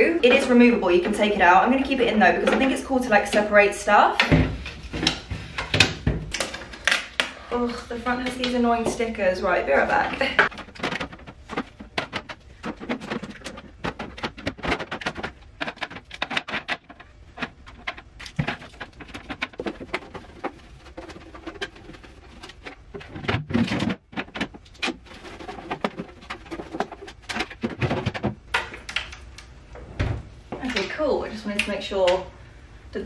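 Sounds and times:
plastic drawers clicking and clattering: 4.2 - 7.3, 9.9 - 29.3.

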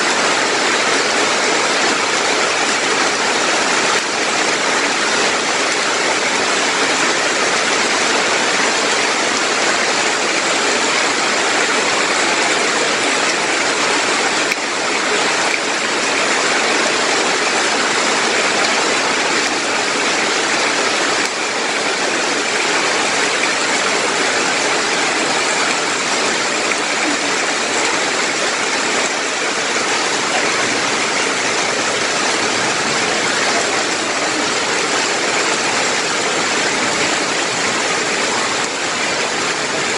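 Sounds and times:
heavy rain on leaves: 0.0 - 39.9.

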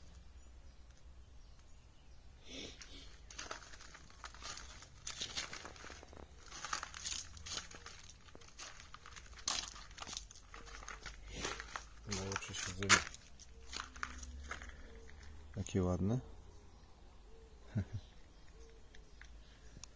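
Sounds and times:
footsteps crunching on gravel: 2.8 - 15.8.

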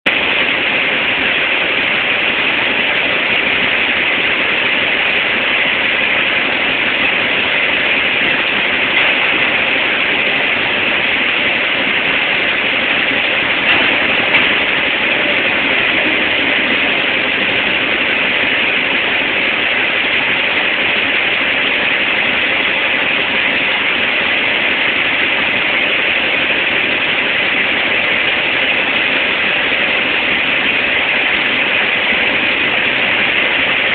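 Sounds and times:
faint steady hum: 0.1 - 33.9
industrial machinery hiss and roar: 0.1 - 33.9.

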